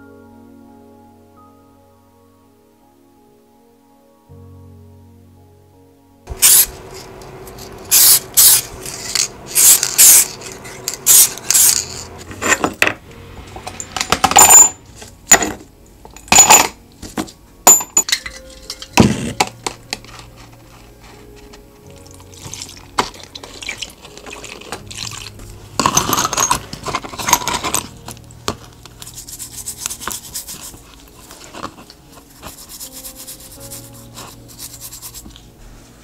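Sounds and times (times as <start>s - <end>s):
metal parts clinking into plastic cup: 6.4s - 12.9s, 13.6s - 20.2s, 22.0s - 28.2s.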